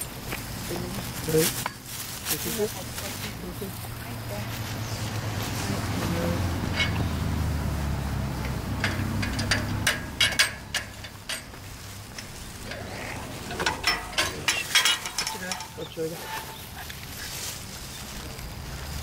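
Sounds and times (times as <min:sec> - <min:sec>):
wire-mesh gate latch clicking: 0:08.8 - 0:11.5.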